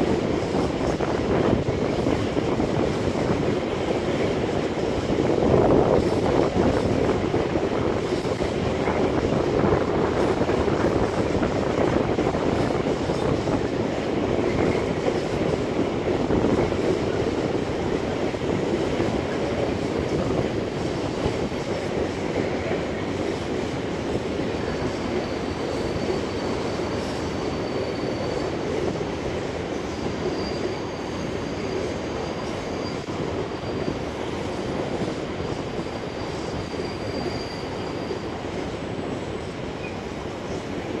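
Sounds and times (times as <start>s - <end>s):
freight train wheels rumbling: 0.0s - 41.0s
high wheel squeals: 24.6s - 28.7s, 30.0s - 34.6s, 35.4s - 40.1s.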